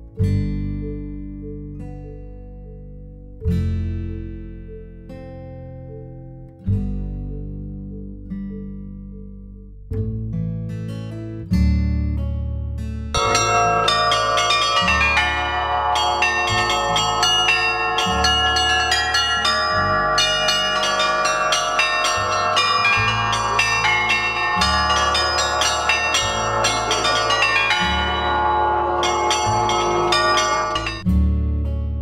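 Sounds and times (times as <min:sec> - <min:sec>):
bronze bells pealing: 0:13.2 - 0:31.1.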